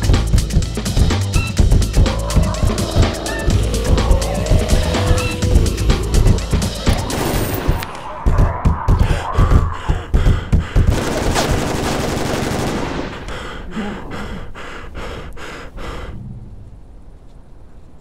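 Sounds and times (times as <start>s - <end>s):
rapid gunfire: 10.8s - 13.3s.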